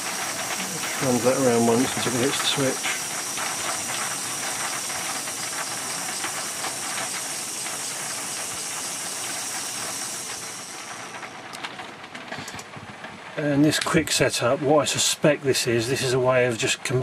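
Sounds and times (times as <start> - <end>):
electric motor whirring: 0.0 - 11.3.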